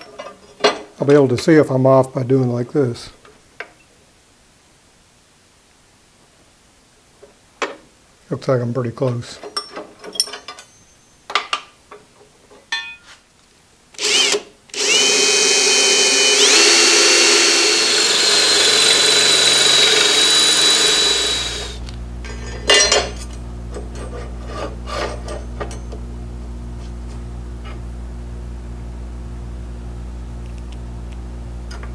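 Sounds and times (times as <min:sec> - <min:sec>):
cordless drill boring through metal: 0:14.0 - 0:21.9
steady low hum: 0:14.1 - 0:31.9.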